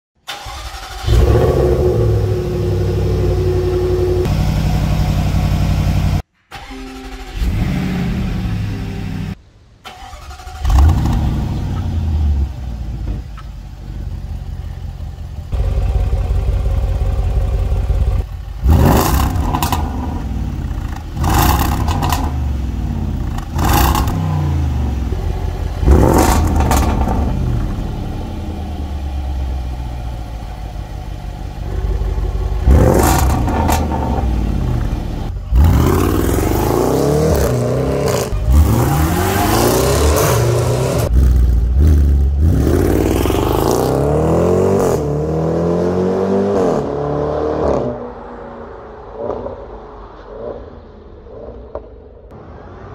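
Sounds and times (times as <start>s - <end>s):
car engine idling: 0.3s - 6.3s, 10.6s - 36.7s
car engine revving: 0.3s - 6.3s, 10.3s - 52.9s.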